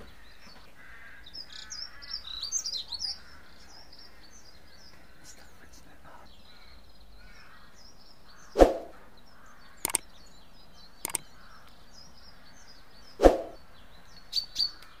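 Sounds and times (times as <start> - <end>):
small birds chirping: 0.0 - 15.0
quick sharp clicks: 9.8 - 10.0.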